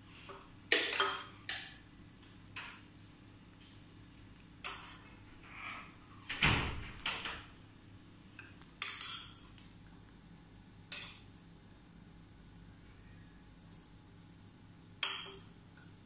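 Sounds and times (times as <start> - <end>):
metal spoon clinking on ceramic bowls: 15.0 - 15.5.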